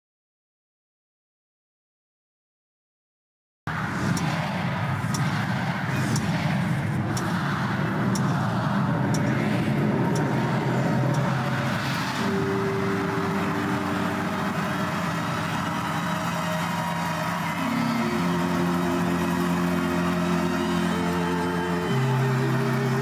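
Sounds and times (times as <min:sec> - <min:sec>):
large crowd roaring: 0:03.7 - 0:23.0
music: 0:07.1 - 0:23.0
sharp ticking: 0:07.1 - 0:23.0.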